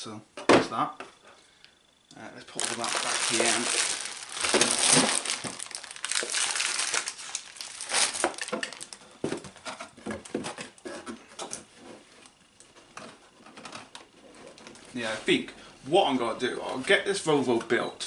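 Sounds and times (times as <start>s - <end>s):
plastic bags crinkling: 2.5s - 9.1s.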